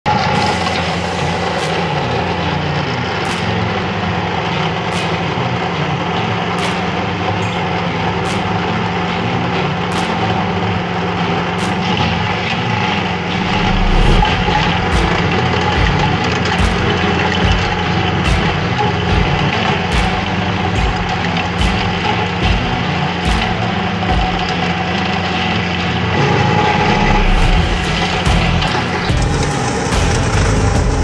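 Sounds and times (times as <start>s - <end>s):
crusher engine running: 0.1s - 31.0s
rotor grinding soil and stone: 27.5s - 31.0s.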